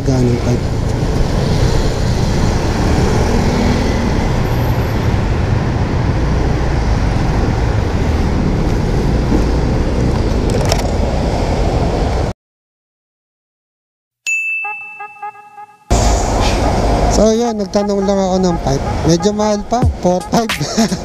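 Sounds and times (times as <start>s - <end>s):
wind rush and road noise: 0.0s - 12.3s.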